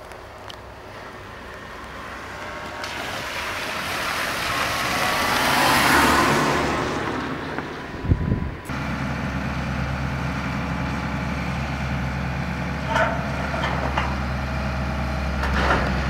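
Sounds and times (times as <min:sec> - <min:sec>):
car driving past: 0:01.7 - 0:10.4.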